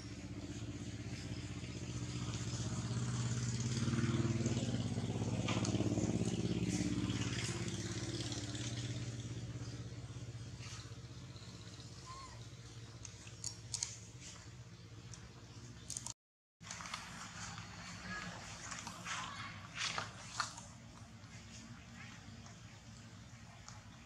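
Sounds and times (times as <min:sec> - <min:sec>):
vehicle engine passing by: 0:00.0 - 0:13.0.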